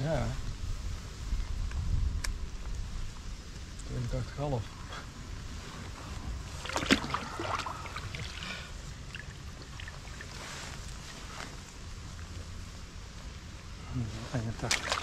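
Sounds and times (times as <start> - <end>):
water sloshing and splashing: 6.4 - 11.0, 14.5 - 15.0.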